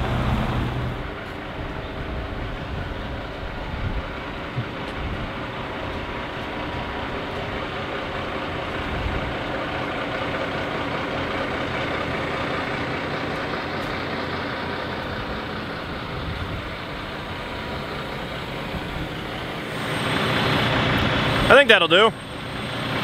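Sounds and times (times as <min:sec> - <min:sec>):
diesel truck engine idling: 0:00.0 - 0:23.0.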